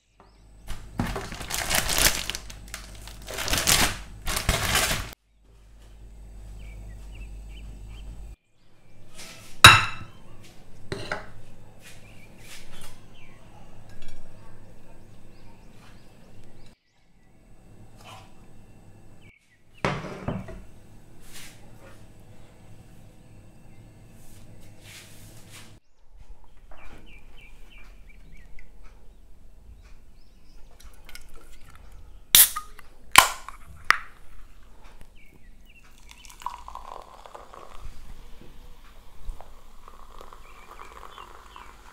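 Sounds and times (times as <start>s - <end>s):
low hum: 5.3s - 9.0s
bowl knocking on a plate: 9.7s - 10.2s.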